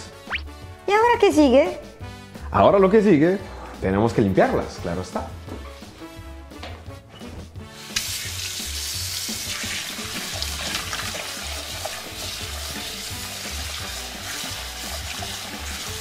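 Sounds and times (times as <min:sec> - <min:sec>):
potatoes washed by hand: 0:07.7 - 0:16.0
tap running water into saucepan: 0:08.0 - 0:16.0.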